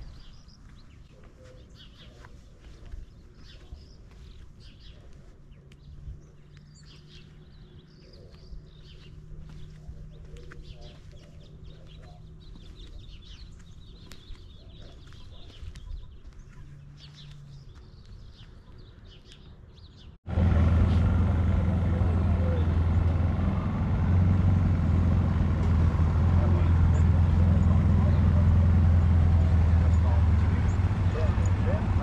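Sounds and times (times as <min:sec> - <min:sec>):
small birds chirping: 0:00.0 - 0:20.2, 0:24.2 - 0:32.0
car engine running: 0:20.3 - 0:32.0.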